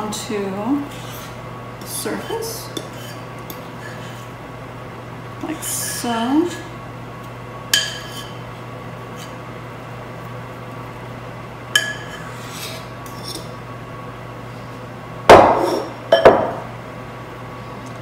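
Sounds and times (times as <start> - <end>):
fork scraping a mixing bowl: 0.8 - 1.4, 2.2 - 4.3, 7.8 - 8.4, 9.1 - 9.4, 11.8 - 13.5
bowl clunking on counter: 15.3 - 16.6.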